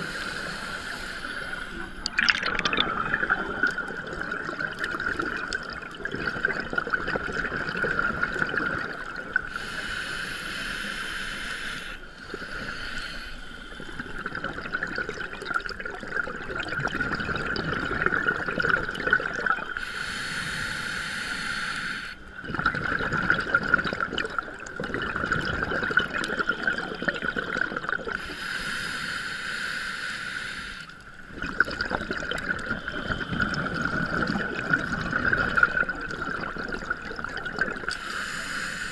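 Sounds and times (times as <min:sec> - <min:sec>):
steady bubbling rumble: 0:01.4 - 0:09.5, 0:13.8 - 0:19.6, 0:22.4 - 0:28.2, 0:31.2 - 0:38.0
rushing bubble bursts: 0:02.0 - 0:09.4, 0:31.3 - 0:37.9.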